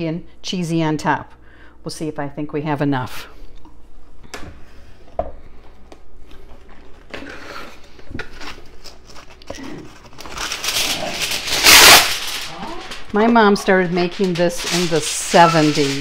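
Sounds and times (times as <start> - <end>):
foil crinkling: 6.6 - 16.0.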